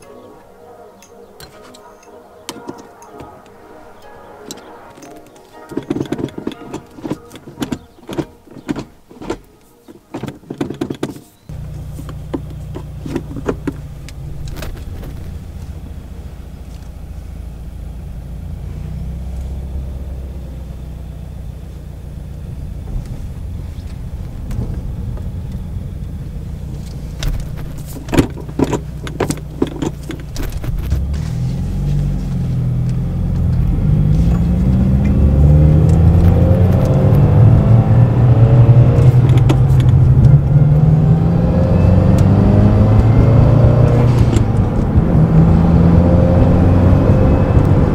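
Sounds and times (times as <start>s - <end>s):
gear lever clunks and clicks: 1.0s - 17.2s, 22.8s - 40.9s, 41.6s - 45.0s
car engine idling: 11.5s - 47.9s.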